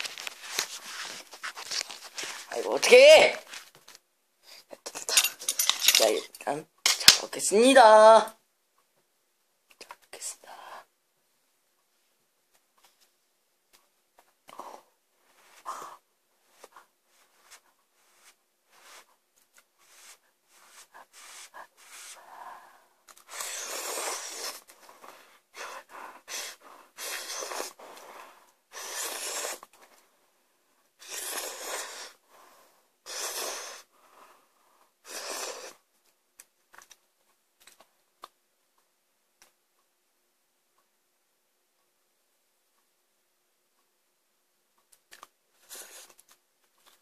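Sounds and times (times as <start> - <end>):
person slurping noodles: 23.3 - 24.7, 26.3 - 27.8, 28.7 - 29.7, 31.0 - 32.2, 33.1 - 33.9, 35.1 - 35.8.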